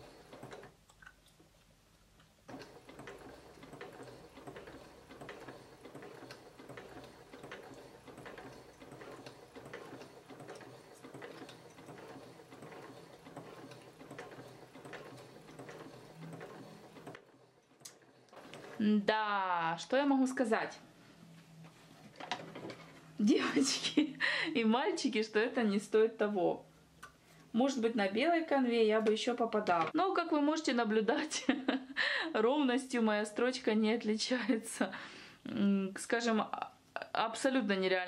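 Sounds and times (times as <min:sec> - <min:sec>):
sewing machine motor hum: 0:00.0 - 0:00.8, 0:02.4 - 0:19.4, 0:22.0 - 0:23.7
sewing machine foot ticking: 0:00.1 - 0:00.7, 0:02.5 - 0:18.8.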